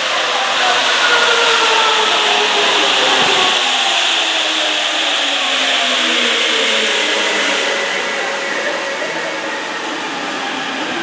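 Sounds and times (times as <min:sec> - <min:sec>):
train tones falling in pitch: 0:00.0 - 0:04.3
subway train tyres hissing: 0:00.0 - 0:11.0.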